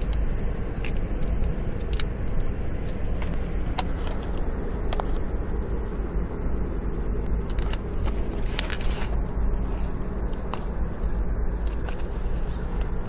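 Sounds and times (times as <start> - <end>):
plastic cards and paper shuffling: 0.0 - 5.2, 7.4 - 13.0
low rumble inside car: 0.0 - 13.0
rustling scrape: 7.5 - 13.0.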